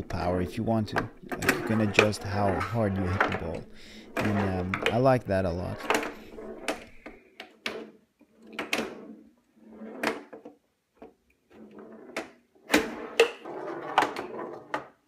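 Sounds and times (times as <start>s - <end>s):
metal ball rolling and rattling: 0.0s - 10.4s
wooden pinball flippers clacking: 0.9s - 7.2s.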